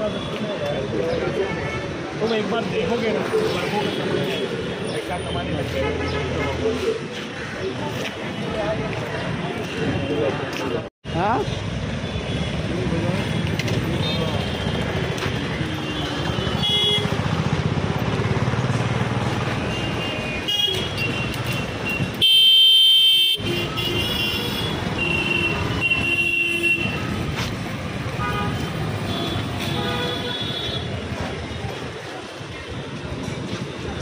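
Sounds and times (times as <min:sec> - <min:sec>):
vehicle engines running: 0:02.4 - 0:22.2.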